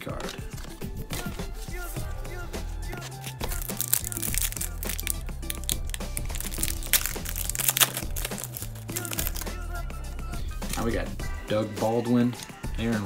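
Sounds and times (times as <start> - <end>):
background music with bass: 0.0 - 13.0
foil wrapper tearing and crinkling: 3.1 - 9.6.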